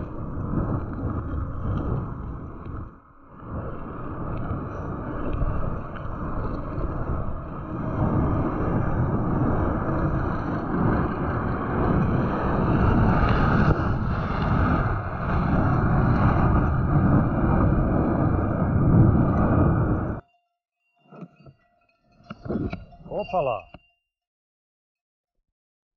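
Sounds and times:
tyres rumbling on asphalt: 0:00.0 - 0:20.2
wind rushing over microphone: 0:00.0 - 0:20.2.

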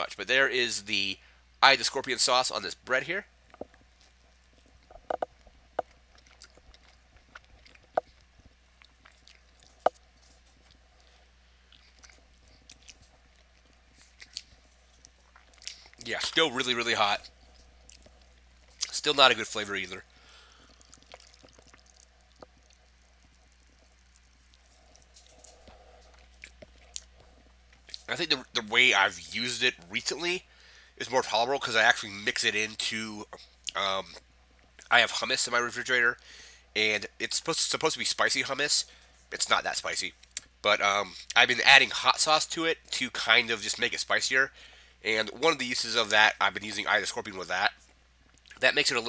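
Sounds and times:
low room hum: 0:00.0 - 0:49.0
chewing mouth clicks and smacks: 0:03.5 - 0:16.4, 0:17.2 - 0:18.9, 0:20.5 - 0:28.1, 0:47.8 - 0:48.6
person swallowing water: 0:20.6 - 0:24.2.

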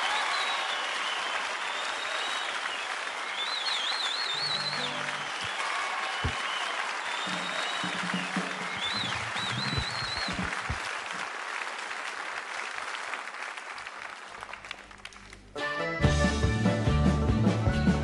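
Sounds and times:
whistles from audience: 0:00.0 - 0:11.3
audience applauding: 0:00.0 - 0:15.5
tin whistle playing: 0:03.4 - 0:05.6, 0:07.1 - 0:10.5
folk-punk band playing: 0:15.6 - 0:18.0.

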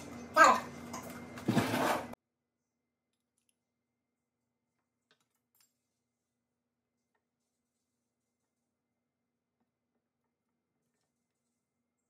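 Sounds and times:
voice: 0:00.4 - 0:00.7.

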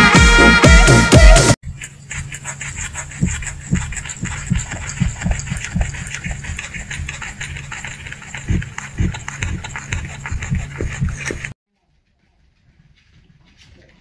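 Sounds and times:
rabbit chewing crisp crunches: 0:01.6 - 0:11.5
steady low hum: 0:01.6 - 0:11.6.

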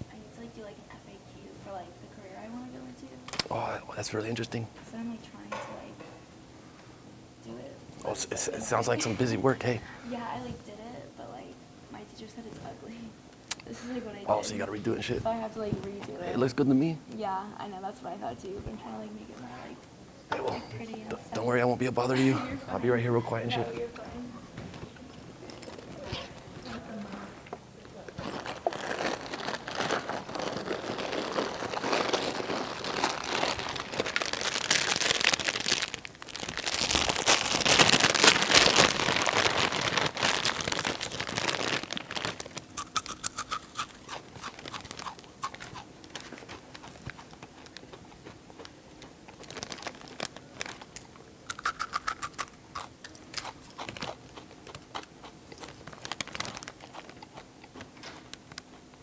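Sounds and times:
chip bag crinkling: 0:08.1 - 0:09.8, 0:25.4 - 0:26.5, 0:28.1 - 0:58.8
chips being crunched and chewed: 0:28.2 - 0:58.8.

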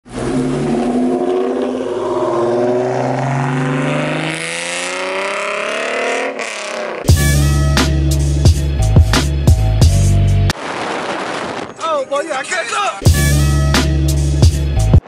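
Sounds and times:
car passing and accelerating: 0:00.1 - 0:07.1.

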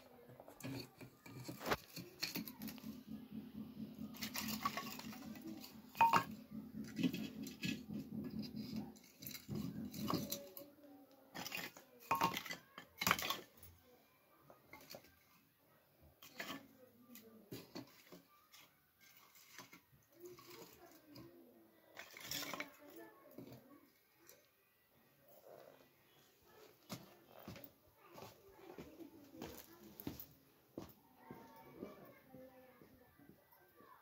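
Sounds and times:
firewood sticks knocking together: 0:04.1 - 0:10.4.

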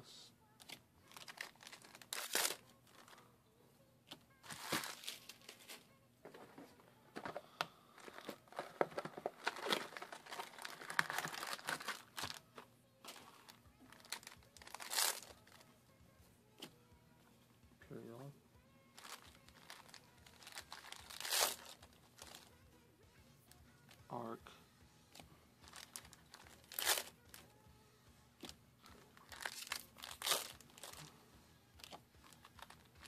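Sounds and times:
foil ripping: 0:01.1 - 0:02.6, 0:04.5 - 0:05.8, 0:08.1 - 0:12.4, 0:14.0 - 0:15.5, 0:19.0 - 0:22.4, 0:25.7 - 0:27.2, 0:29.3 - 0:31.1
foil packs crinkling: 0:01.1 - 0:03.2, 0:04.4 - 0:05.8, 0:07.3 - 0:12.4, 0:13.1 - 0:15.6, 0:19.0 - 0:22.5, 0:25.7 - 0:27.4, 0:29.2 - 0:31.1.

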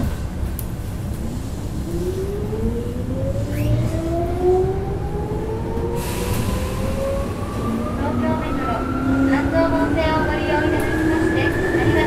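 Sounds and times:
train wheels rumbling: 0:03.8 - 0:12.0.

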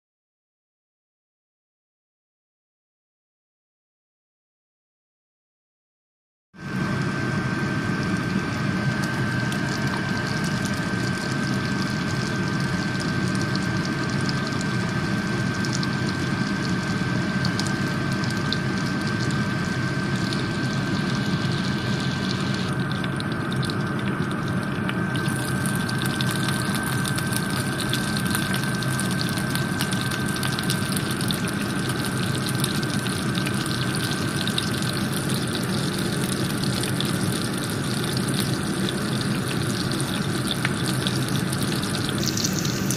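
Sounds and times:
low hum: 0:06.6 - 0:42.9
butter and garlic sizzling: 0:25.2 - 0:42.9.

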